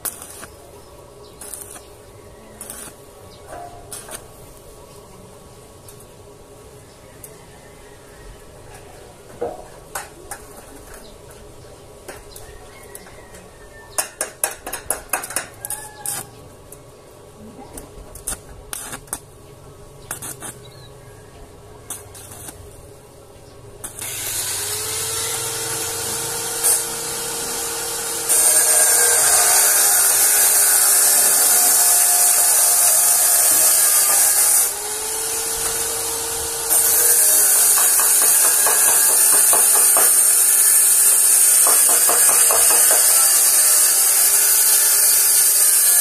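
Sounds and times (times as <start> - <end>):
electric drill whining: 24.0 - 46.0.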